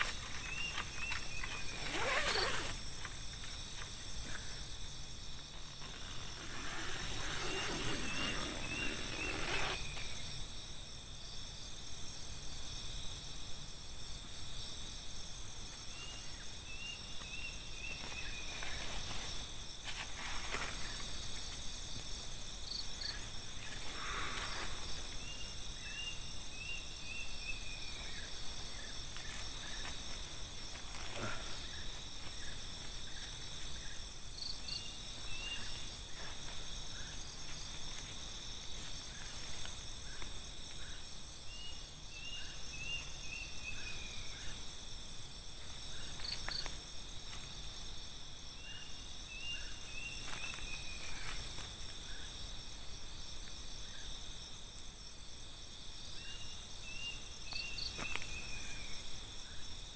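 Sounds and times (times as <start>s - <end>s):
rustling inside nylon tent: 0.0s - 10.4s, 17.2s - 41.4s, 49.6s - 53.3s
crickets and insects trilling: 0.0s - 59.9s.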